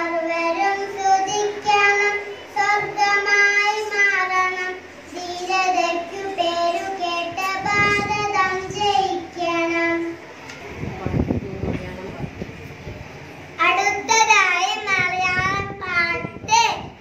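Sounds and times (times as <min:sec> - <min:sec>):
girl singing into a microphone: 0:00.0 - 0:10.2.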